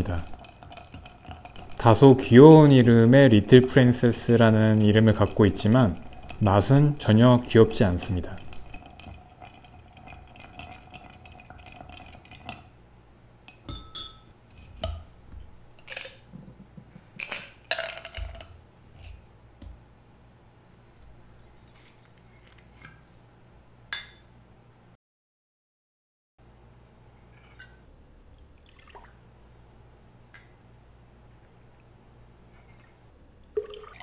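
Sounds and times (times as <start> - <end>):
spoon stirring ice in glass: 0.0 - 2.7, 3.4 - 12.6.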